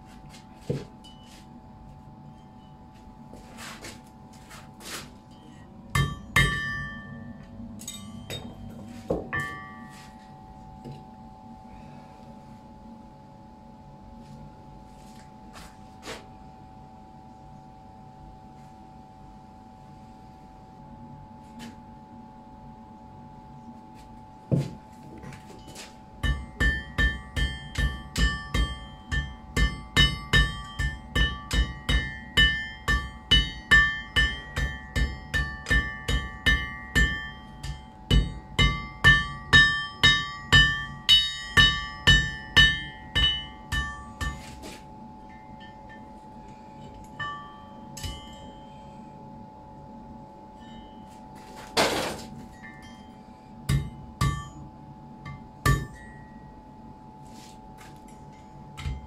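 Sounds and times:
faint steady hum: 0:00.0 - 0:59.0
hammer ringing on anvil: 0:05.3 - 0:10.3, 0:25.6 - 0:44.6, 0:45.2 - 0:49.2, 0:50.5 - 0:51.2, 0:52.4 - 0:56.6, 0:58.2 - 0:59.0.

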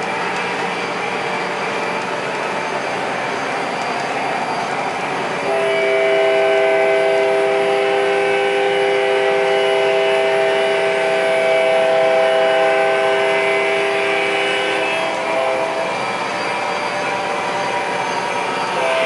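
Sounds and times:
model train rumbling on track: 0:00.0 - 0:19.0
model train horn chord: 0:05.4 - 0:15.9, 0:18.7 - 0:19.0.

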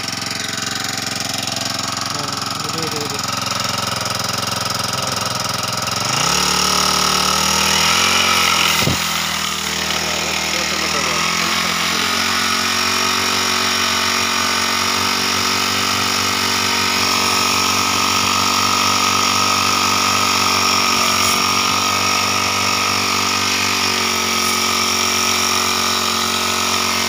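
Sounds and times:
small engine running steadily: 0:00.0 - 0:27.0.

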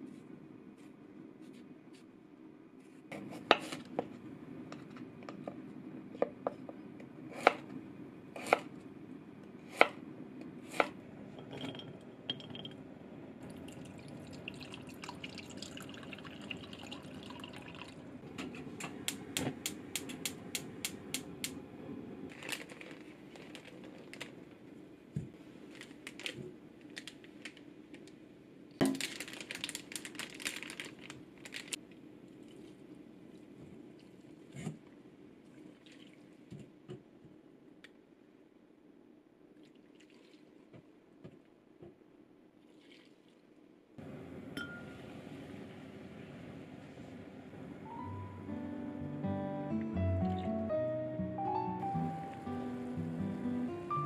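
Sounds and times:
broth pouring into pot: 0:13.5 - 0:18.0.

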